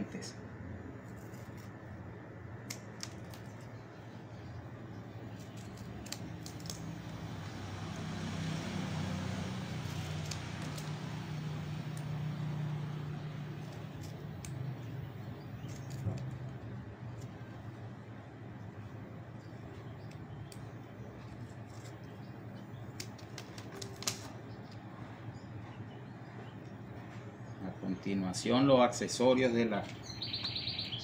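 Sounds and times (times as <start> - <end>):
low steady hum: 0.0 - 31.0
scissors snipping leaf: 1.0 - 1.9, 2.6 - 4.1, 5.2 - 17.6, 19.7 - 24.4.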